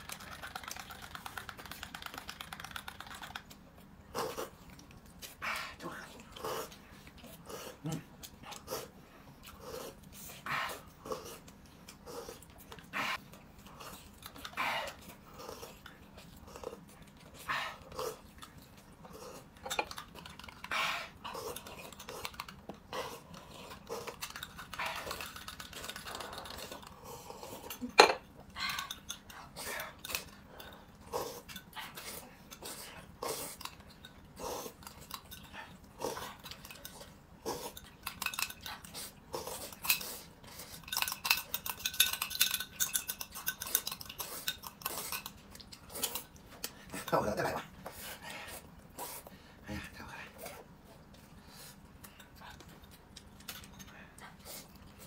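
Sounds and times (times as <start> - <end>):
utensils clinking against bowl: 27.7 - 29.3, 37.7 - 38.8, 39.7 - 45.4.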